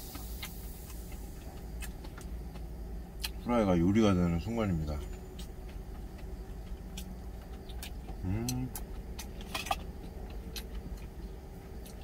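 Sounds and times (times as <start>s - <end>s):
truck engine idling: 0.0s - 12.0s
person humming: 8.2s - 8.8s.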